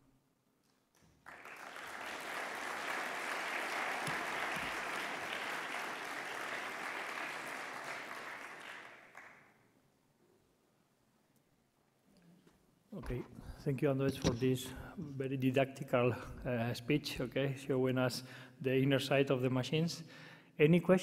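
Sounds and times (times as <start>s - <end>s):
audience applauding: 1.0s - 9.5s.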